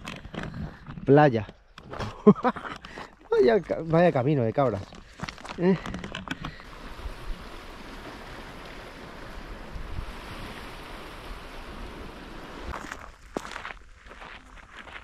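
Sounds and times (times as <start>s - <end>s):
wind blowing across microphone: 6.7s - 12.8s.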